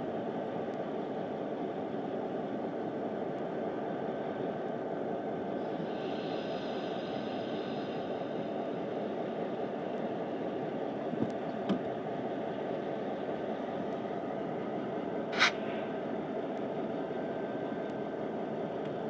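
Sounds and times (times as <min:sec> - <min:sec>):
diesel locomotive engine: 0:00.0 - 0:19.0
sharp burst of noise: 0:15.4 - 0:15.8.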